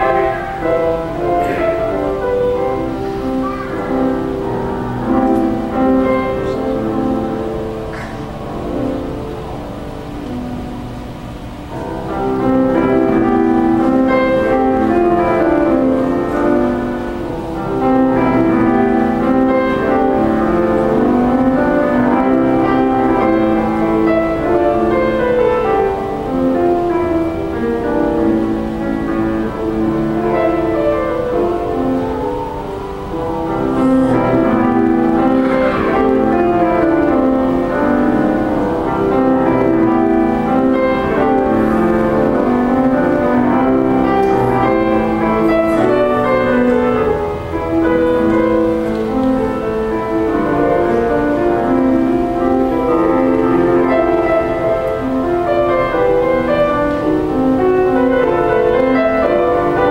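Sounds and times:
solo grand piano piece: 0:00.0 - 0:59.9.

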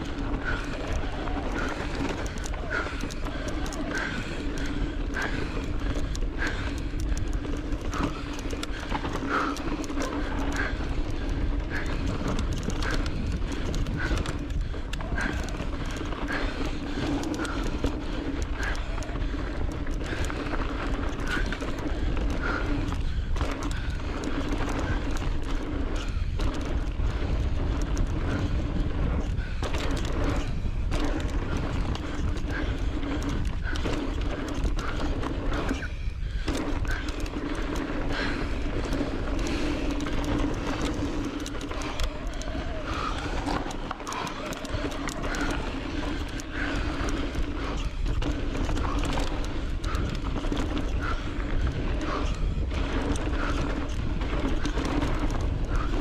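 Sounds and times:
bike chain and frame rattling: 0:00.0 - 0:56.0
tyres crunching over dirt: 0:00.0 - 0:56.0
wind buffeting microphone: 0:00.0 - 0:56.0.

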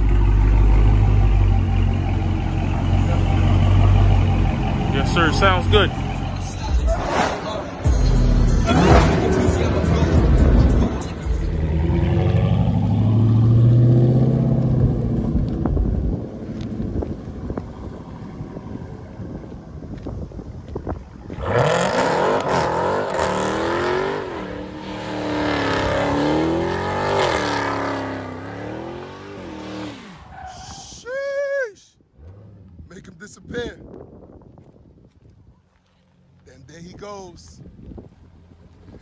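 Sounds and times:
engine revving: 0:00.0 - 0:15.5, 0:21.4 - 0:30.3
car engine accelerating: 0:00.0 - 0:30.7
tires screeching: 0:00.0 - 0:34.2.

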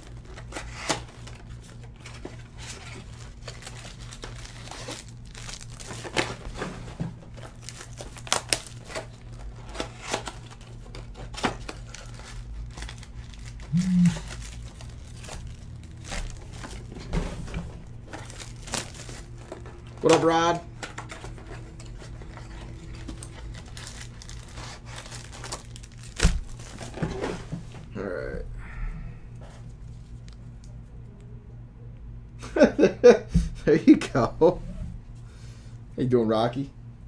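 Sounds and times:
cards being handled: 0:00.0 - 0:27.1
foil wrappers crinkling and tearing: 0:00.0 - 0:27.6
low hum-like tone: 0:00.0 - 0:37.0.

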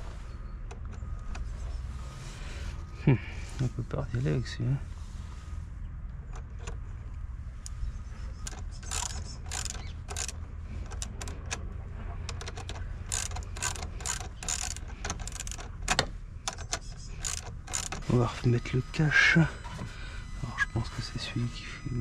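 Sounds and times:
ratchet wrench clicking: 0:08.4 - 0:11.6, 0:12.3 - 0:18.0.

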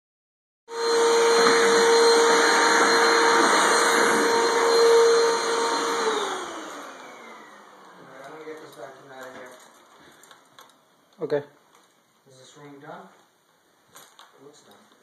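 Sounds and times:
vacuum cleaner motor whine: 0:00.7 - 0:08.7.

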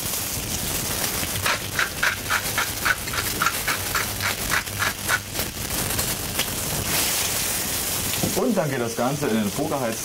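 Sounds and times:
oil sizzling in a pan: 0:00.0 - 0:10.0
spice mill grinding: 0:01.4 - 0:05.5.

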